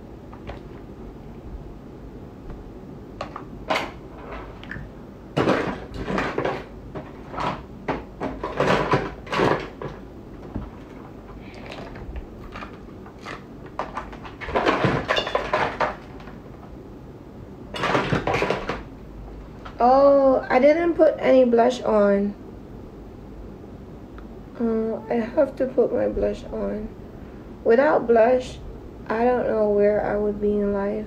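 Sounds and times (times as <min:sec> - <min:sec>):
small objects knocking and clattering: 0:03.2 - 0:16.4, 0:17.7 - 0:18.9.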